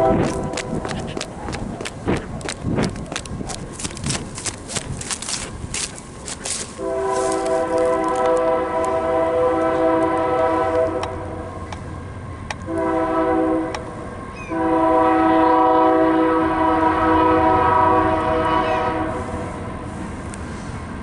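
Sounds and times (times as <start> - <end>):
locomotive air horn blasts: 0.0 - 0.8, 6.6 - 11.5, 12.7 - 19.9.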